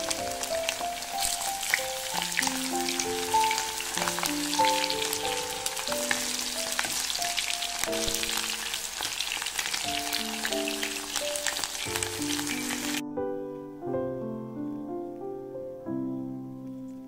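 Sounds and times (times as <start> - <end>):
chicken wings frying in oil: 0.0 - 13.0
soft background music: 0.0 - 17.0.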